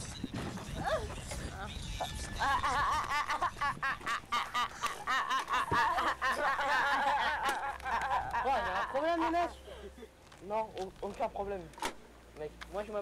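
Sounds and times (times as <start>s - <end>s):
boys laughing: 0.6s - 10.1s.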